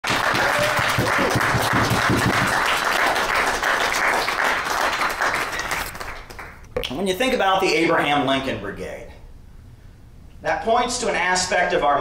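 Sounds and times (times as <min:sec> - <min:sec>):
audience clapping: 0:00.0 - 0:06.7.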